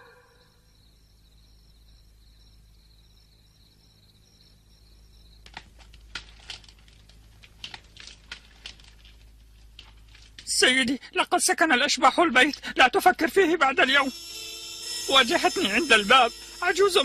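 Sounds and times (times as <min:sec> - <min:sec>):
sharp crackling clicks: 0:05.4 - 0:10.6
high-pitched pulsing chirps: 0:13.8 - 0:17.0.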